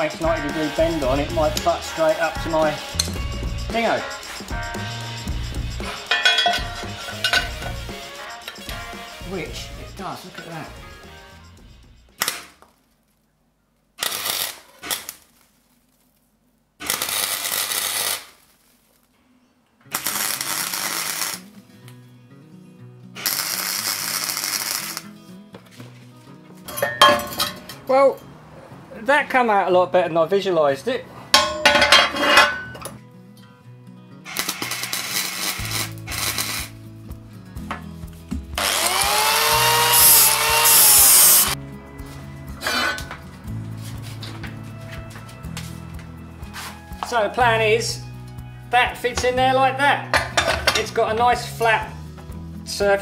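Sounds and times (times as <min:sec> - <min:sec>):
background music: 0:00.0 - 0:12.6, 0:19.9 - 0:53.0
angle grinder grinding steel: 0:05.8 - 0:09.2, 0:34.3 - 0:36.8, 0:38.6 - 0:41.6
welder arc crackling: 0:14.0 - 0:15.5, 0:16.8 - 0:19.0, 0:19.9 - 0:21.5, 0:23.2 - 0:25.1, 0:34.3 - 0:36.8, 0:38.6 - 0:41.6.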